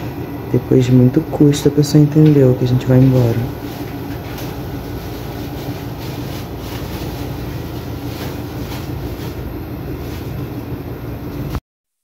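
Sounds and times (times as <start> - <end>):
air conditioner humming: 0.0 - 11.6
plastic bag crinkling: 3.0 - 10.6.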